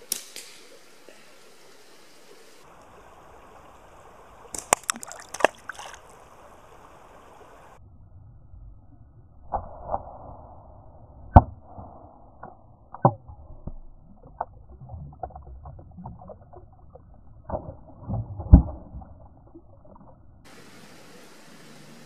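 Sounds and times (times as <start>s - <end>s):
slingshot shots striking: 0.0s - 0.7s
steady rushing hiss: 0.0s - 4.6s, 6.0s - 7.8s, 20.5s - 22.0s.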